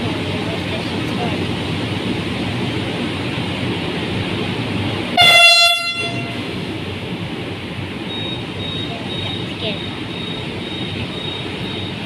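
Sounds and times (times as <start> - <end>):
low rumble of train: 0.0 - 12.0
train horn blast: 5.2 - 6.5.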